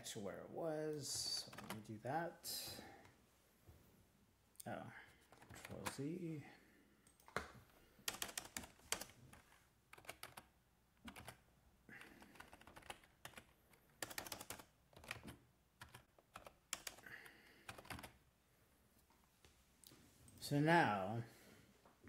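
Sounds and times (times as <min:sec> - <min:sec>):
computer keyboard typing: 0:01.4 - 0:01.9, 0:05.2 - 0:06.0, 0:07.1 - 0:11.4, 0:12.0 - 0:18.2.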